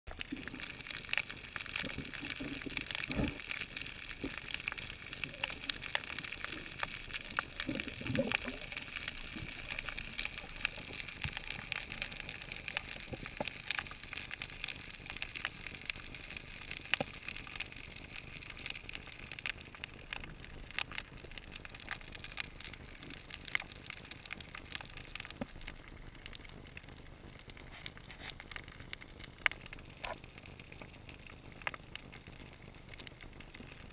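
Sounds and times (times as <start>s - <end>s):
low gurgling: 0.1s - 17.0s
crackle of small underwater clicks: 0.1s - 33.9s.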